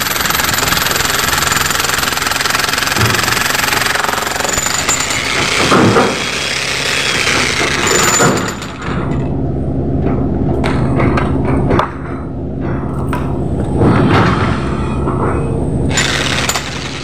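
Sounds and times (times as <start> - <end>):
jackhammer breaking concrete: 0.0 - 9.1, 15.9 - 17.0.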